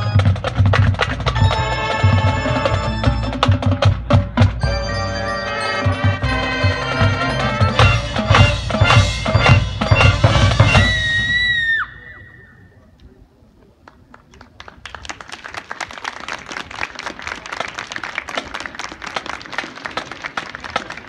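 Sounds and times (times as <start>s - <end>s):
marching band held note: 1.2s - 12.1s
audience applause: 13.9s - 21.0s.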